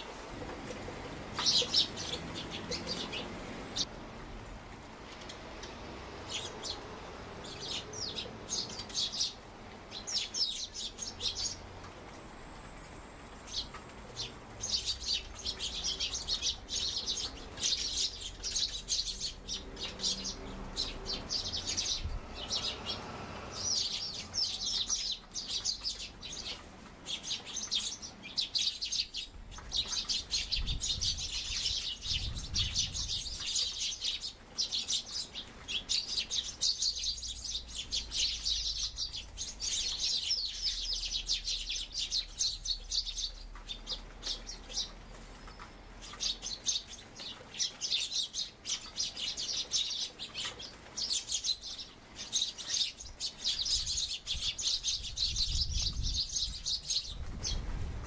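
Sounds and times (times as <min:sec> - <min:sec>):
sparrows chirping rapidly: 0:00.0 - 0:04.0, 0:05.1 - 0:58.0
wind rumbling on microphone: 0:21.6 - 0:22.9, 0:30.3 - 0:33.5, 0:53.6 - 0:58.0.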